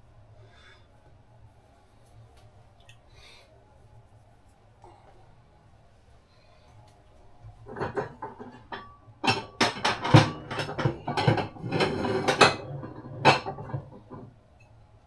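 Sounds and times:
dishes and cutlery clattering: 7.6 - 14.3.

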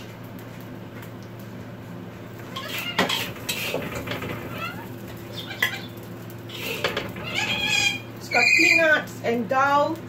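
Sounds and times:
short squeaks: 2.5 - 8.9
metal spatula scraping wok: 2.6 - 4.8, 6.5 - 8.5.

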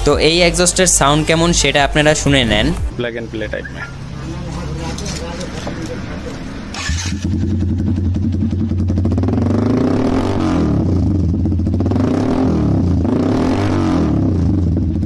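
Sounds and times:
motorcycle engine idling: 3.8 - 9.8, 10.8 - 12.0, 14.3 - 15.0.

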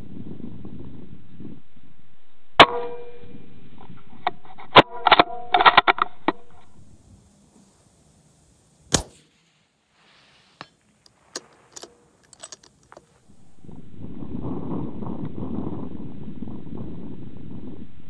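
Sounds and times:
rifle shot: 8.9 - 9.3.

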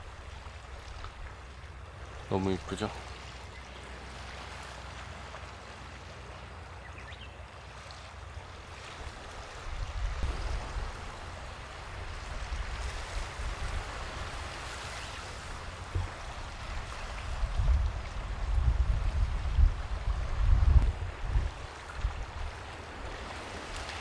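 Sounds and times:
sea waves washing ashore: 0.0 - 24.0
wind rumble on microphone: 8.2 - 24.0.

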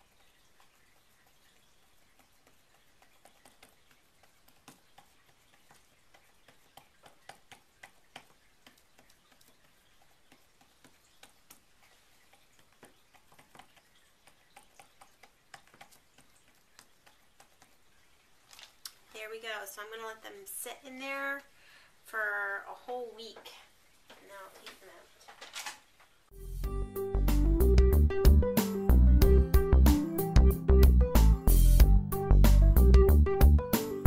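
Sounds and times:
soft clicks and crackles: 0.0 - 19.2, 23.3 - 26.3.

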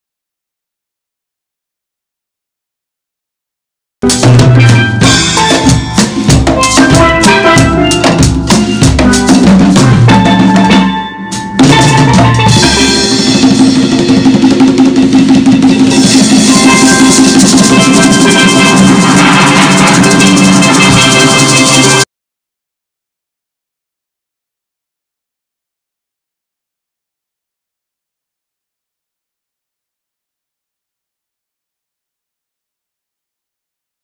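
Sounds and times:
conga and hand drums: 4.0 - 22.1
steel pan ensemble: 4.0 - 22.1.

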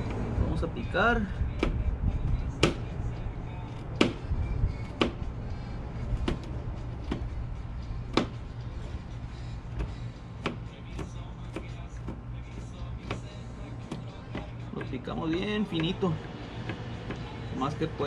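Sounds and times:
steady low hum: 0.0 - 18.0
knife chopping on plastic board: 4.0 - 4.2, 8.1 - 8.4, 9.8 - 12.2, 13.0 - 17.3.

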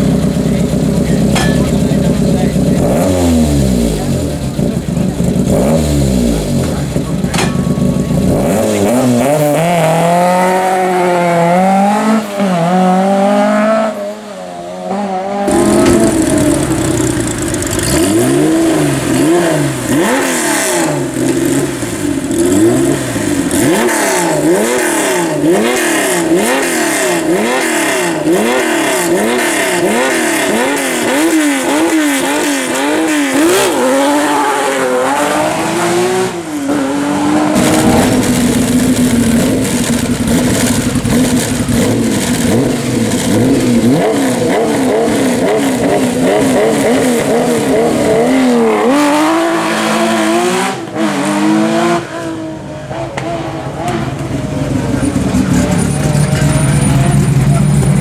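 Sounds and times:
rally car engine revving: 0.0 - 58.0
engine blipped rhythmically: 54.2 - 58.0.

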